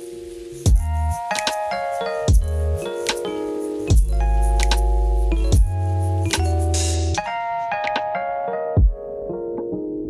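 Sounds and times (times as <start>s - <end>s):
ringing melody over deep bass: 0.7s - 1.3s, 2.0s - 7.2s.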